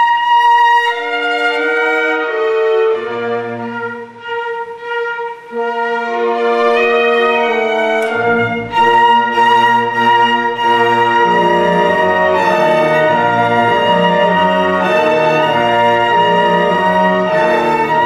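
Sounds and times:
orchestral string music: 0.0 - 18.0.

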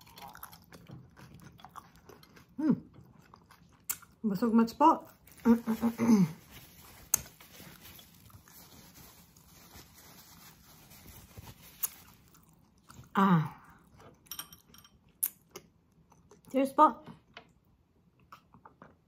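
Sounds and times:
woman chewing and swallowing: 0.0 - 4.2, 17.1 - 19.0
napkin rustling: 5.3 - 12.3.

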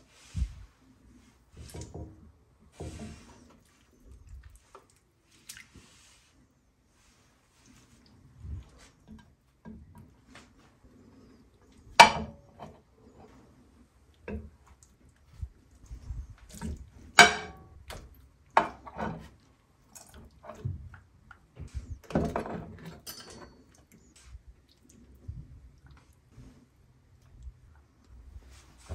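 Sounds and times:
liquid dripping and sloshing: 2.8 - 6.2, 14.0 - 28.9
food clinking on ceramic plate: 22.8 - 23.8.

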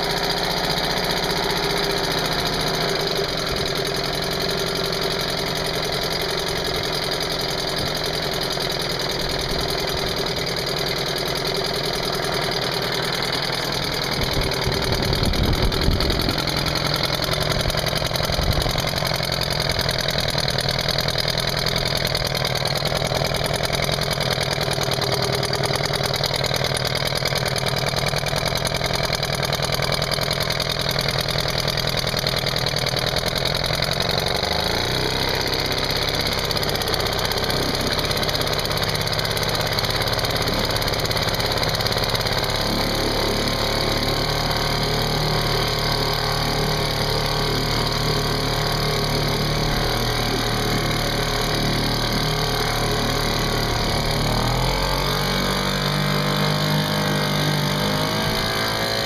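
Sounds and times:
propeller churning water: 0.0 - 55.9
outboard motor running: 0.0 - 59.0.

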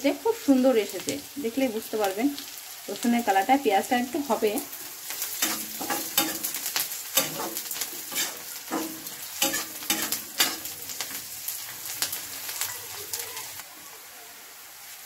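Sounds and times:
onions sizzling in oil: 0.0 - 15.0
metal spatula scraping a pan: 5.0 - 12.4.

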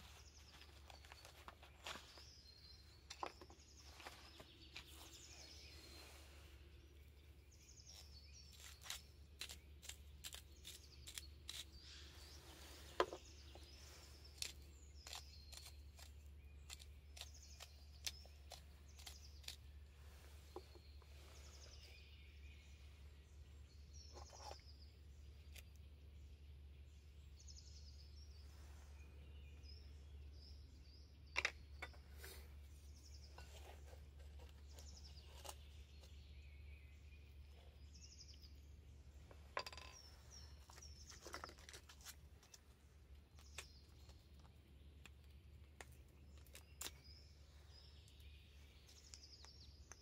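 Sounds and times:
small birds chirping: 0.0 - 50.0.

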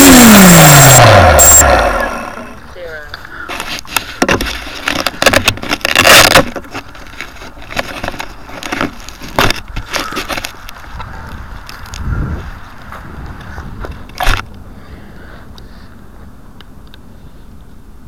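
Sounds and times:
drone propellers: 0.0 - 2.7
knocks and crackles: 3.5 - 12.1.

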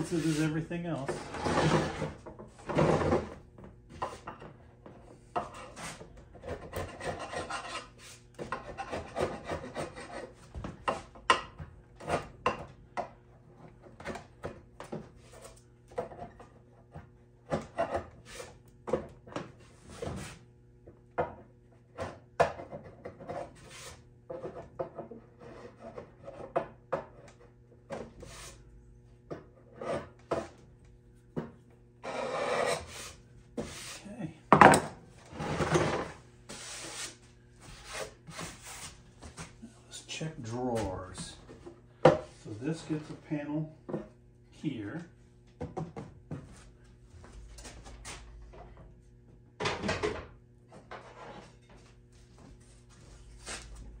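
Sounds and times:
hand scraper scraping wood: 0.0 - 2.2, 5.4 - 11.1, 22.0 - 26.5, 32.0 - 34.0, 35.3 - 39.0.

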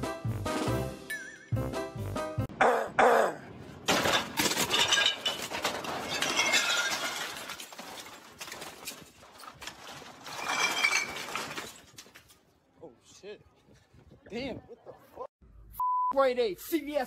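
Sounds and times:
goods crashing to floor: 3.8 - 12.2.

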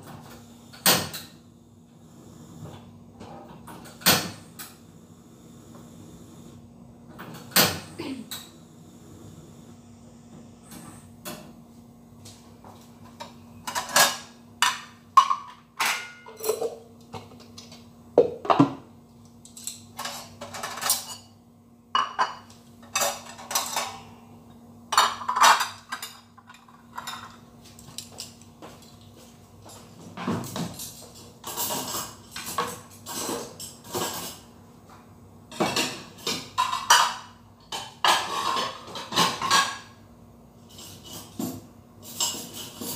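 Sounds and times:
faint steady hum: 0.0 - 42.9
dishes and cutlery clinking: 13.2 - 17.5, 19.4 - 21.4, 22.0 - 24.1, 24.9 - 29.0, 29.6 - 34.5, 35.5 - 40.0, 40.7 - 42.9.

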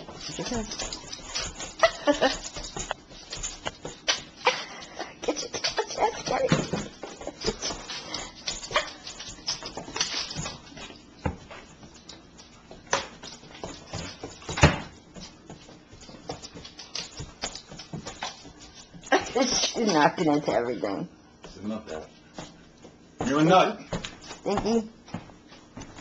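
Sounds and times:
claws and bodies knocking on floor: 5.6 - 19.3, 22.3 - 26.0.

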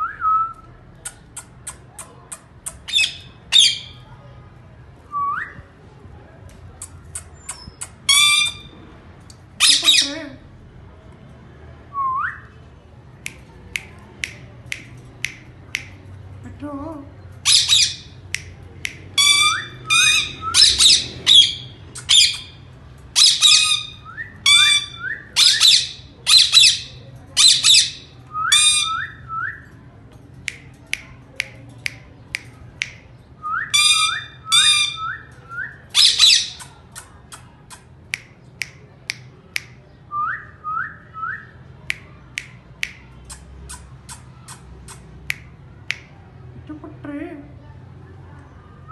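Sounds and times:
parakeets squawking: 2.7 - 4.0, 7.2 - 8.7, 9.6 - 10.3, 17.4 - 18.2, 19.2 - 29.1, 33.7 - 35.1, 36.0 - 36.9
sharp little clicks: 13.2 - 16.2, 17.6 - 19.6, 30.3 - 33.1, 35.0 - 39.8, 41.8 - 46.2.

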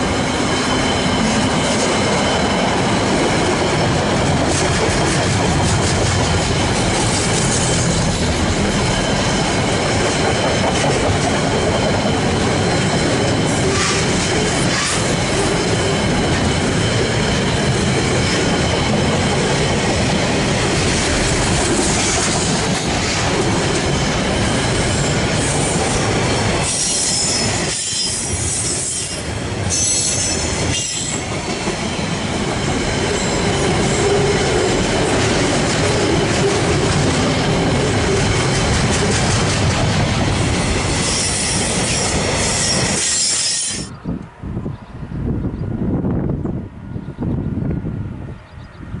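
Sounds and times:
train wagons rumbling on rails: 0.0 - 49.0
high-pitched wheel squeals: 26.6 - 31.2, 42.5 - 43.9.

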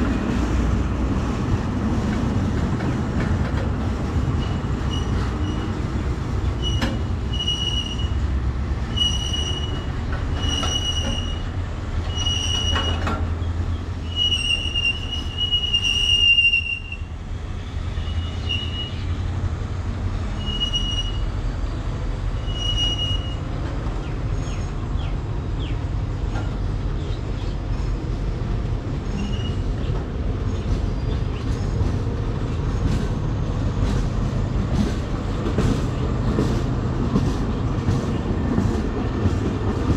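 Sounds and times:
freight train rumbling past: 0.0 - 39.9
train wheels squealing: 4.4 - 5.8, 6.5 - 8.3, 8.9 - 19.2, 20.3 - 21.4, 22.3 - 23.5, 29.0 - 31.9.

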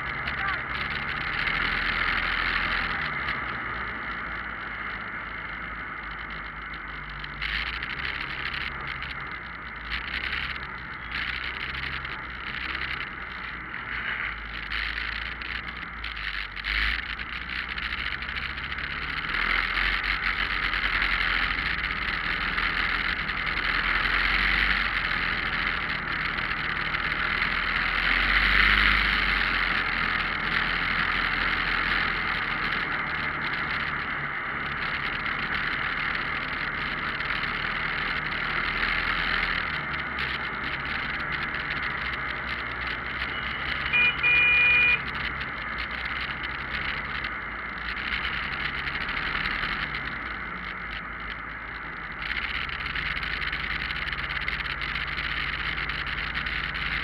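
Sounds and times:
motorcycle engine: 0.0 - 57.0.

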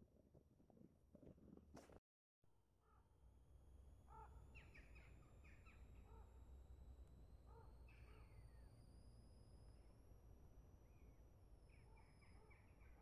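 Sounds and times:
faint bird calls: 4.1 - 6.3, 7.5 - 8.7.

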